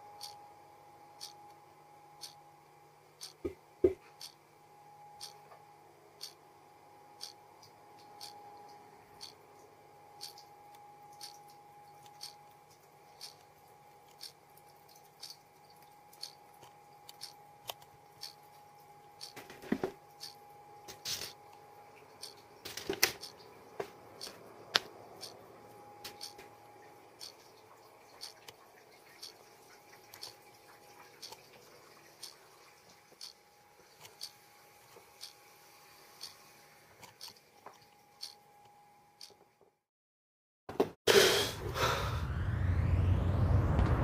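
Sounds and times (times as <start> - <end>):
faint steady hum: 0.0 - 39.6
sharp ticks: 0.2 - 0.4, 3.2 - 3.4, 5.2 - 5.4, 8.0 - 8.4, 10.2 - 10.5, 11.1 - 12.6, 13.2 - 13.5, 14.1 - 15.4, 16.1 - 18.4, 19.2 - 19.4, 20.2 - 20.4, 22.2 - 22.4, 23.1 - 23.4, 26.1 - 26.5, 27.2 - 27.4, 28.2 - 28.5, 30.1 - 30.4, 34.0 - 34.4, 37.0 - 37.4, 38.2 - 38.4.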